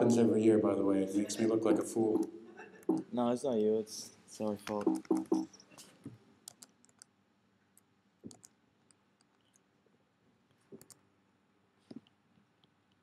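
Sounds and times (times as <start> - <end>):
keyboard and mouse clicks: 1.7 - 3.1, 4.6 - 5.5, 6.4 - 7.1, 7.8 - 9.6, 10.7 - 11.0.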